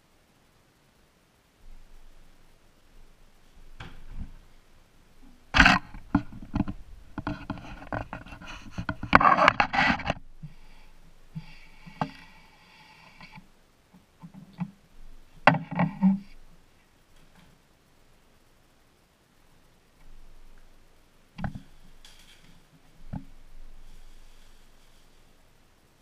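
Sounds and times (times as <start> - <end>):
objects scraping and clattering: 5.2 - 13.5, 15.4 - 16.4.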